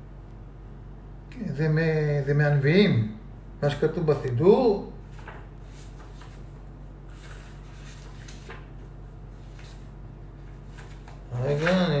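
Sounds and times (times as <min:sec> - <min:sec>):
low steady hum: 0:00.0 - 0:12.0
paper pages rustling: 0:05.0 - 0:12.0.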